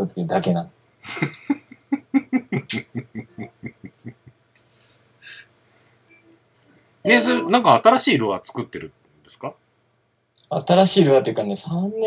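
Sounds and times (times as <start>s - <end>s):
men laughing: 1.0s - 4.4s
short breath: 4.7s - 6.0s.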